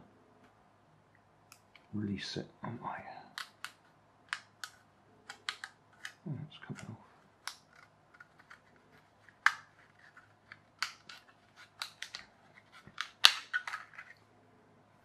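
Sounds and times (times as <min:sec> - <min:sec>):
plastic cracking and snapping: 0:03.3 - 0:14.2.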